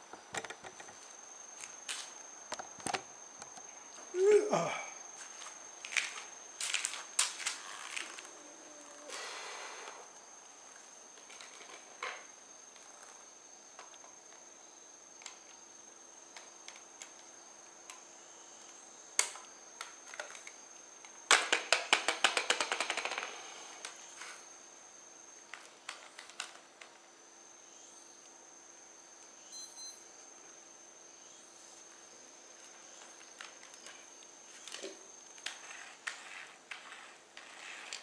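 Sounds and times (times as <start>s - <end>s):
faint steady high tone: 8.0s - 17.3s, 27.2s - 35.0s.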